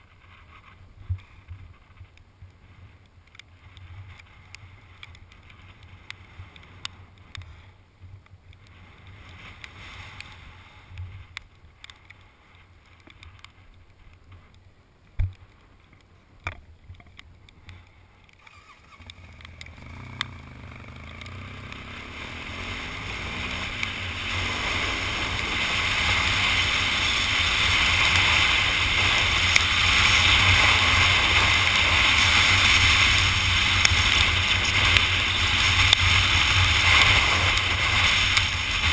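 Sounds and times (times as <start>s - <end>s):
wind rushing over microphone: 22.0s - 38.9s.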